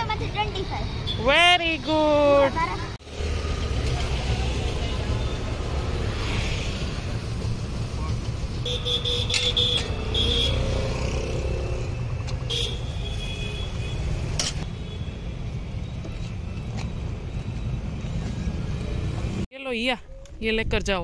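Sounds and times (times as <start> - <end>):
traffic rumble: 0.0 - 21.0
vehicle horn tooting: 8.6 - 10.7.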